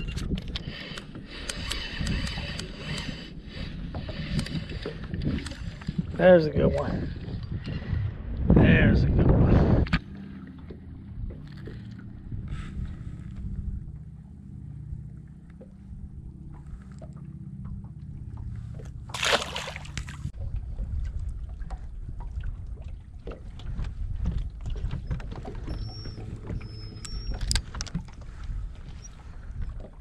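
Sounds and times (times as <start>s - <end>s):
small clicks: 0.0s - 3.1s, 26.8s - 28.2s
wind noise: 0.0s - 10.1s, 20.0s - 30.0s
low steady hum: 0.0s - 30.0s
water slapping boat hull: 0.2s - 8.5s, 9.2s - 30.0s.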